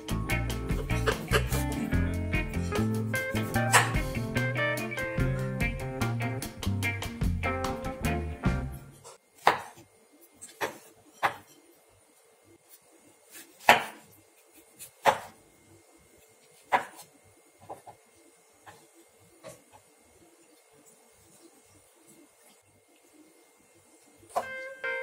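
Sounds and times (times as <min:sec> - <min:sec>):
guitar music: 0:00.0 - 0:08.9, 0:24.4 - 0:25.0.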